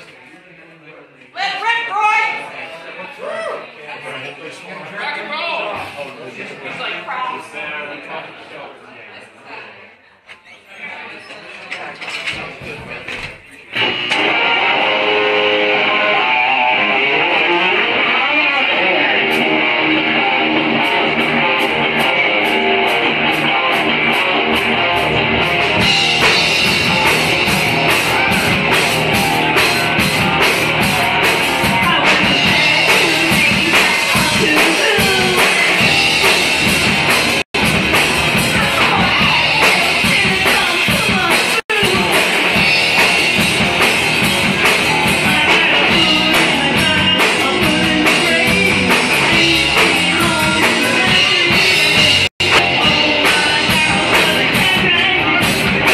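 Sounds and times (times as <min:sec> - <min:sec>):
electric guitar: 0:13.7 - 0:55.9
live rock band playing: 0:13.7 - 0:55.9.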